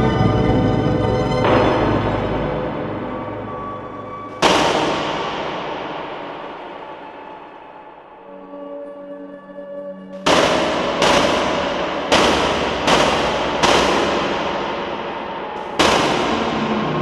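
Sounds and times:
gunshot-like noise bursts: 4.4s - 8.3s, 10.2s - 17.0s.

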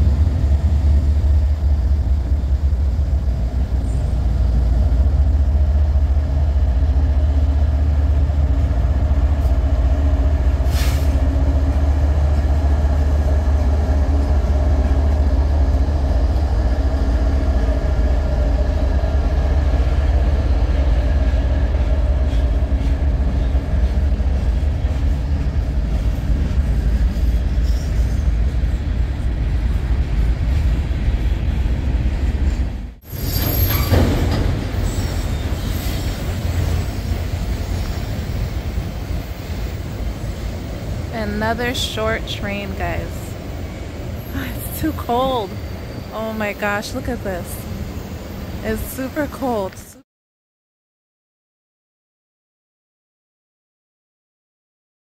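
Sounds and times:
diesel locomotive engine rumble: 0.0s - 50.0s.

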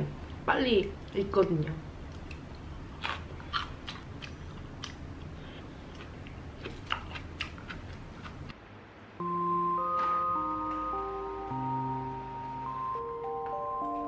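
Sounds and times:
steady low hum: 0.0s - 9.8s
soft eating clicks: 1.0s - 8.6s
person chewing food: 2.0s - 8.6s
mallet percussion music: 9.2s - 14.0s.

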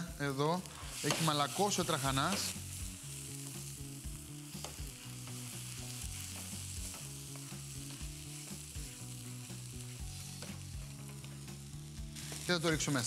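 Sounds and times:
food sizzling in a frying pan: 0.0s - 13.0s
spatula scraping a pan: 0.8s - 2.6s, 4.6s - 11.4s.

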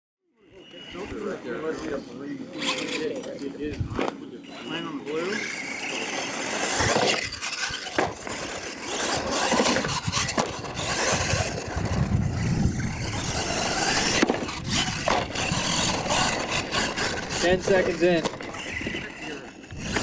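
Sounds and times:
toy truck drivetrain whirring: 0.4s - 20.0s
tyres scrabbling over dirt: 5.1s - 20.0s.

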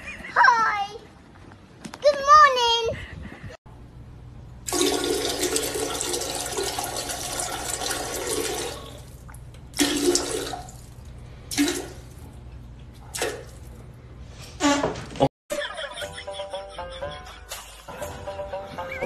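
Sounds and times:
toilet flushing: 4.6s - 12.2s.

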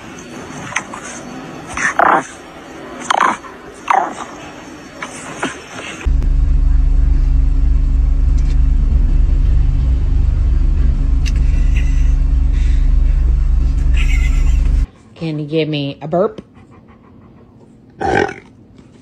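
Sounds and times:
car cabin drone: 6.0s - 14.9s.

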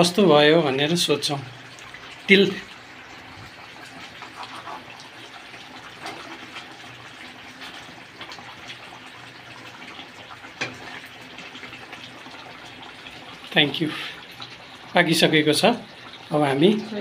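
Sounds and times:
curry simmering: 0.0s - 17.0s
spatula stirring and scraping: 3.3s - 9.0s.

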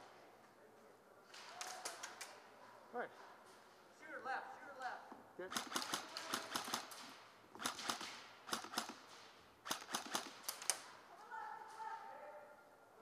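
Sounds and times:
airsoft guns firing bursts: 5.5s - 10.9s.

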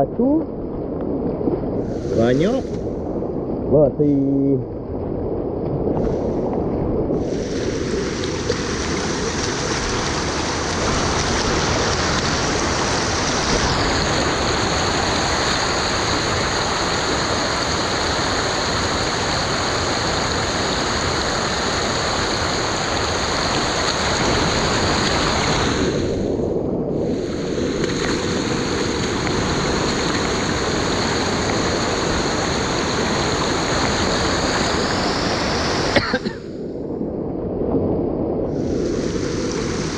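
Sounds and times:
water rushing over a dam: 7.2s - 26.3s, 27.0s - 36.5s, 38.6s - 39.9s.

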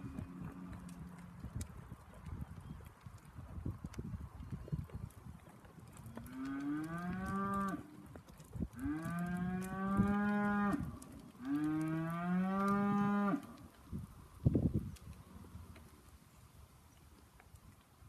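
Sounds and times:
cows mooing: 6.2s - 7.9s, 8.8s - 13.5s.

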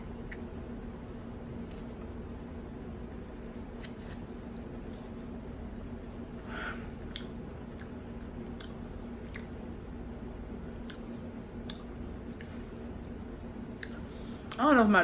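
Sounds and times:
steady low hum: 0.0s - 15.0s
person chewing food: 0.2s - 0.6s, 7.0s - 9.7s.

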